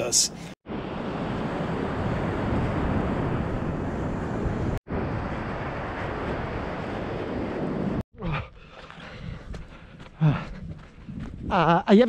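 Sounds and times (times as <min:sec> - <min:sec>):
wind on microphone: 0:00.7 - 0:08.0, 0:10.4 - 0:12.0.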